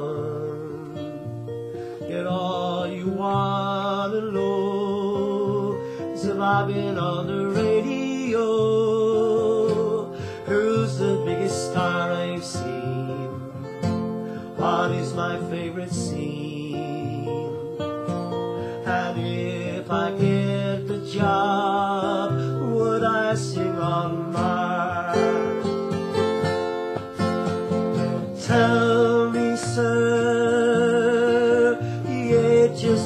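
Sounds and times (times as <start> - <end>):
acoustic guitar strummed: 0.0 - 33.0.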